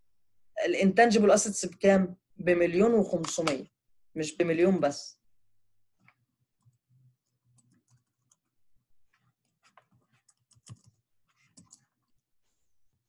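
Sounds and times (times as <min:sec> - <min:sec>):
faint keyboard keystrokes: 0:09.5 - 0:11.9.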